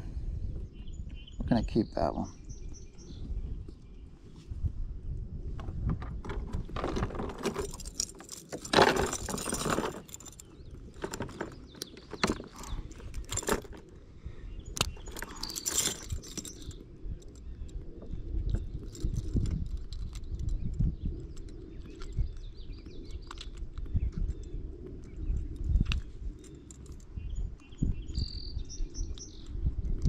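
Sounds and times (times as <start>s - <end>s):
chain clatter: 6.7s - 13.9s, 14.8s - 17.8s, 18.4s - 27.3s
metal chain jangling and clicking: 7.1s - 13.9s, 14.8s - 17.7s, 18.4s - 23.6s, 24.2s - 27.2s.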